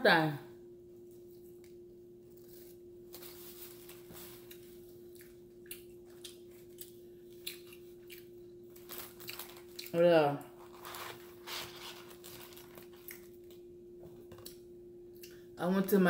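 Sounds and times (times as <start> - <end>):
steady low hum: 0.0 - 16.0
person chewing: 4.4 - 10.0, 10.6 - 13.6.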